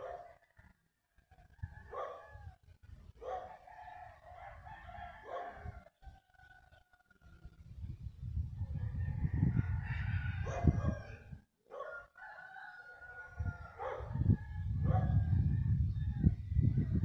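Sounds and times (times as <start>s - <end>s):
roosters crowing: 3.5s - 7.5s, 8.7s - 16.4s.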